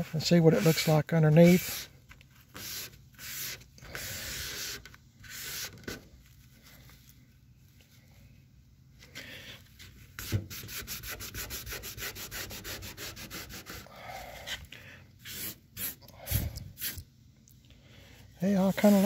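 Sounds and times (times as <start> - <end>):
paper towel rubbing on metal: 0.0 - 6.0, 10.1 - 13.9, 15.2 - 17.0, 18.4 - 19.0.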